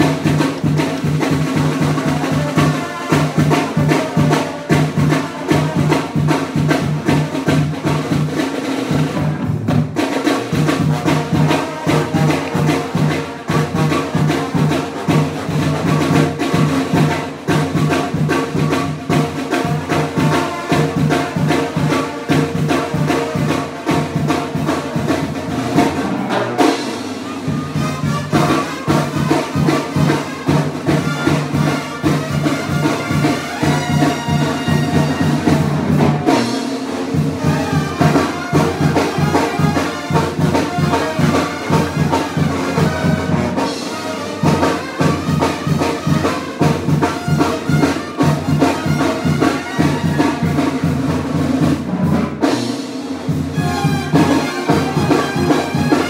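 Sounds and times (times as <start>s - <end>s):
brass band playing: 0.0s - 56.0s.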